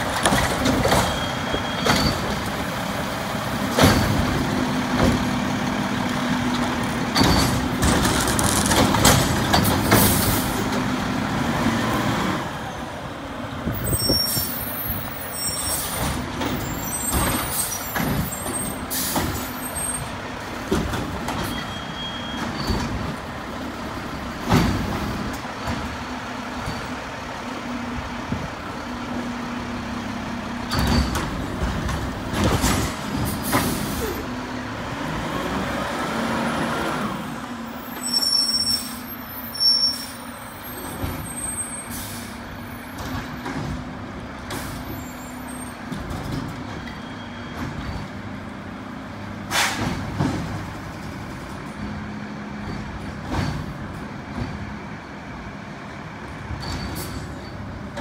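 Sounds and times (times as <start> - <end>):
truck engine whine: 0.0 - 58.0
air brake hisses: 41.8 - 42.4, 49.5 - 49.8.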